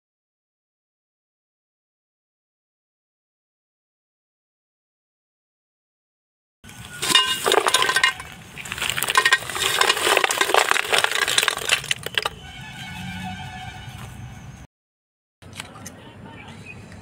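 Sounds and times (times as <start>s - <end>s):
snail shells clattering in metal pot: 6.9s - 12.5s.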